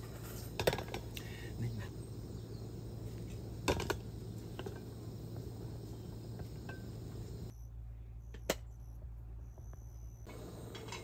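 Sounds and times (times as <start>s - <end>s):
gas stove burner hissing: 0.0s - 7.5s, 10.3s - 11.0s.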